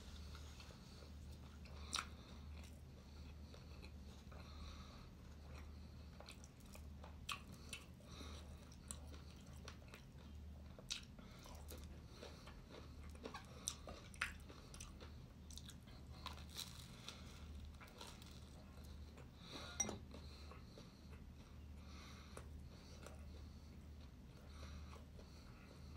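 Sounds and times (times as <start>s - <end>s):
low steady hum: 0.0s - 25.9s
person chewing: 5.3s - 21.6s.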